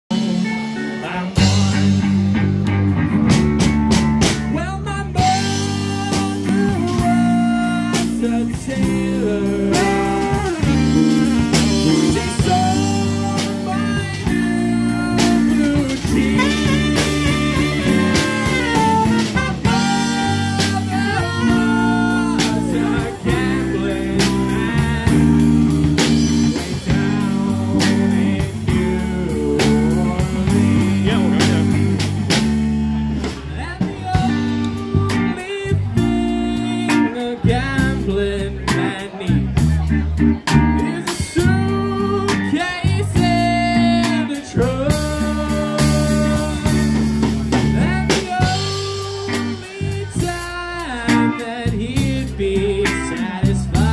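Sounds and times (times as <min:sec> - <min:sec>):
bass: 0:00.0 - 0:53.9
keyboard: 0:00.0 - 0:53.9
person singing: 0:00.1 - 0:02.4, 0:04.2 - 0:32.1, 0:33.3 - 0:53.9
electric guitar: 0:00.1 - 0:53.9
steady drum beat: 0:00.1 - 0:53.9
saxophone: 0:09.8 - 0:28.8, 0:29.6 - 0:32.4.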